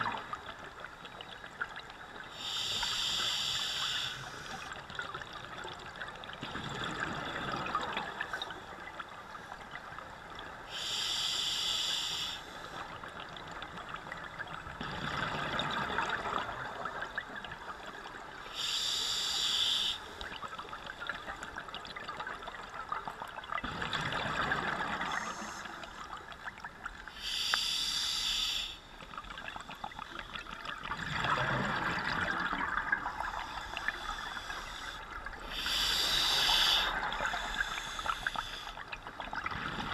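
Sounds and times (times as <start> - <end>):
regulator inhale hiss: 2.3 - 4.8, 10.7 - 13.0, 18.5 - 20.3, 25.0 - 26.1, 27.1 - 29.0, 33.3 - 38.9
exhaled bubbles rushing: 30.7 - 33.4.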